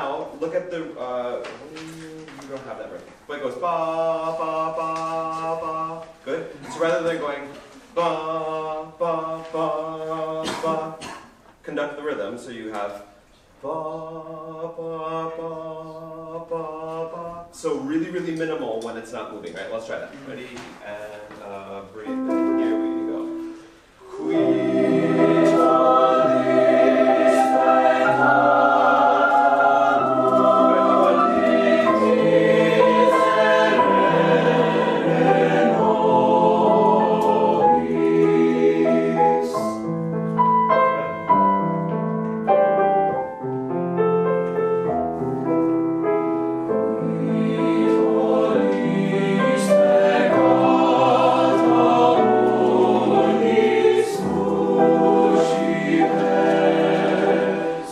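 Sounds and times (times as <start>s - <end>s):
choir singing held chords: 22.1s - 39.9s, 46.6s - 57.9s.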